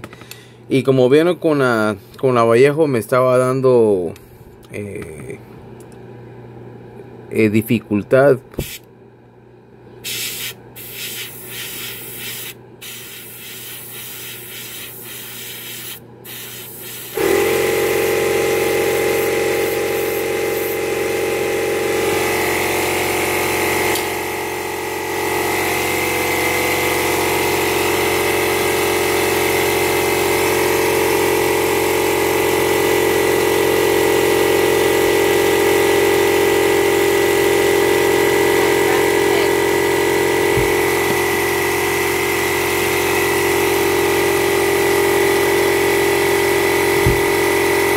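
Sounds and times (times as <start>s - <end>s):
air compressor motor humming: 8.5s - 8.9s, 10.0s - 47.9s
airbrush hissing bursts: 8.6s - 8.8s, 10.0s - 17.5s, 19.2s - 20.8s.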